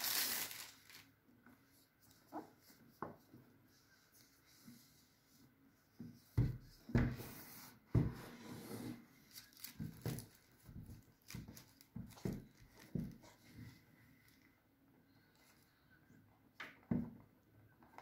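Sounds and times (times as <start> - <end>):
plastic wrap rustling: 0.0 - 1.2, 9.2 - 13.2.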